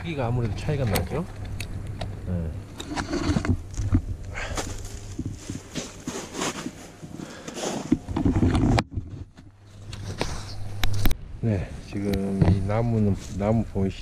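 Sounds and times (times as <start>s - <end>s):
boots crunching through snow: 4.4s - 7.9s.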